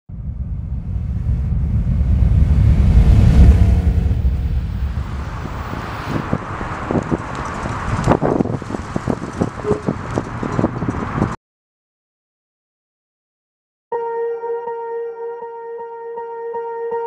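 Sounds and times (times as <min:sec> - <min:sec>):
deep rumbling whoosh: 0:00.1 - 0:11.4
wind noise on microphone: 0:00.1 - 0:11.4.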